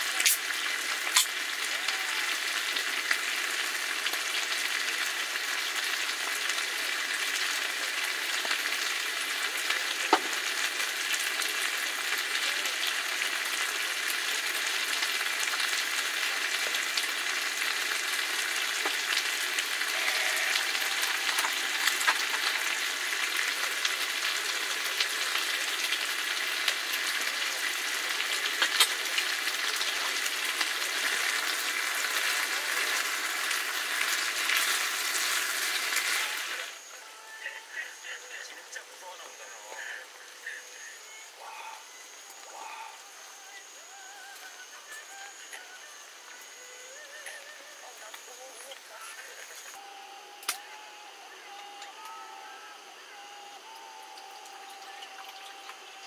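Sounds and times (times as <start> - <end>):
food sizzling in a pan: 0.0 - 56.0.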